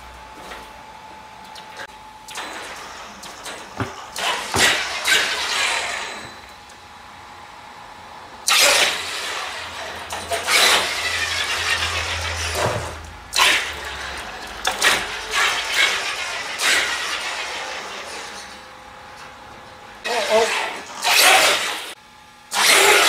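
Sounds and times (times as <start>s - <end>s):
rc truck motor whirring: 2.3s - 6.5s, 8.4s - 18.6s, 20.0s - 23.0s.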